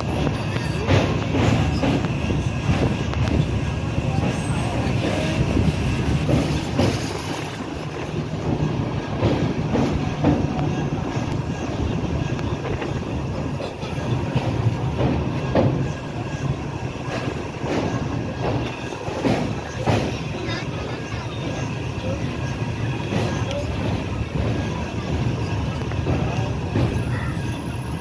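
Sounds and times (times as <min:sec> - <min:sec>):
wheels knocking over rails: 0:00.0 - 0:20.6
train rumbling on bridge: 0:00.0 - 0:28.0.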